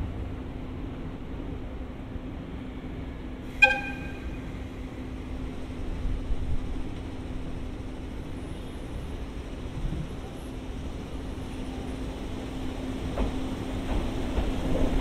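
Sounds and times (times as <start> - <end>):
train rumble: 0.0 - 15.0
short sharp horn toot: 3.5 - 4.4.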